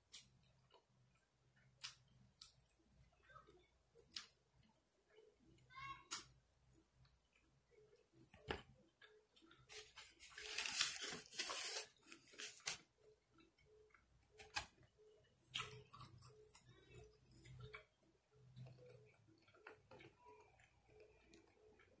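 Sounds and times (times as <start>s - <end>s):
faint steady ticking: 0.0s - 9.7s, 13.0s - 22.0s.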